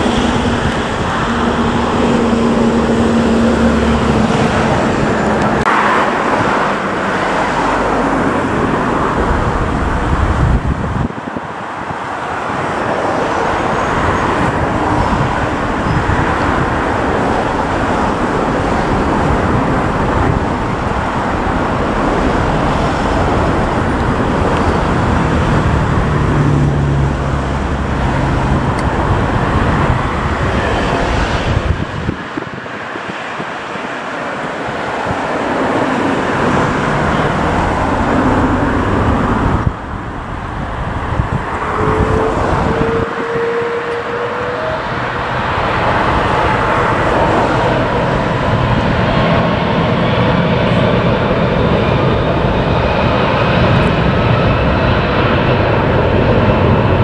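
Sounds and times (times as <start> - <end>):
jet engines running: 0.0 - 57.0.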